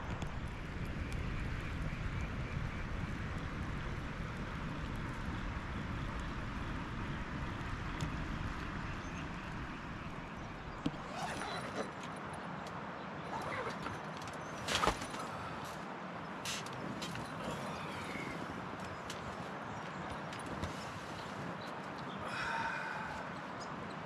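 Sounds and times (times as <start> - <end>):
river rushing: 20.6 - 23.8.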